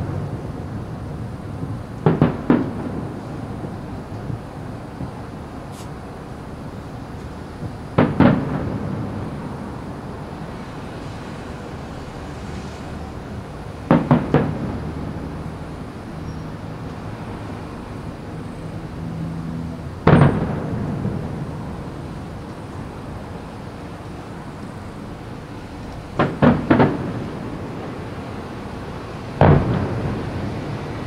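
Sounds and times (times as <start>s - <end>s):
distant firework shells bursting: 1.9s - 4.4s, 7.6s - 9.6s, 13.8s - 15.4s, 20.0s - 21.6s, 26.0s - 28.0s, 29.3s - 30.7s.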